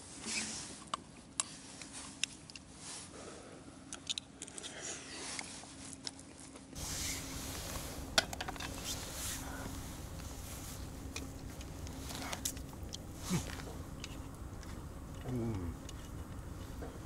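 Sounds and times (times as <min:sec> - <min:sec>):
faint low hum: 0:03.3 - 0:17.0
steady rushing background: 0:06.8 - 0:15.2.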